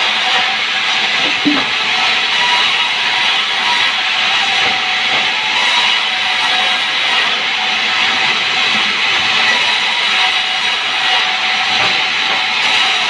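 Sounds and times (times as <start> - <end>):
band saw cutting wood: 0.0 - 13.0
machine running: 0.9 - 6.5.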